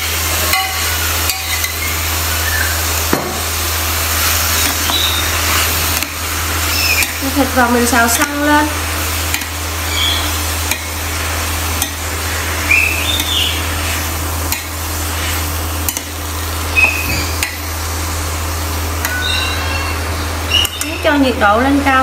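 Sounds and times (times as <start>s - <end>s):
meat sizzling in a pan: 0.0s - 21.4s
spatula scraping a pan: 11.8s - 16.2s.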